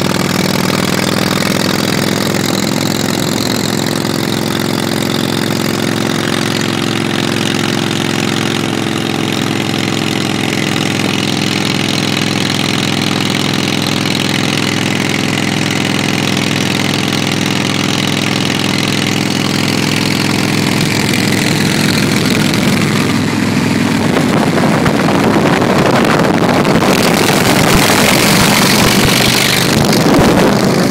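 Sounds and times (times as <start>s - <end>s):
motorcycle engine cruising: 0.0s - 30.9s
wind and road noise: 0.0s - 30.9s.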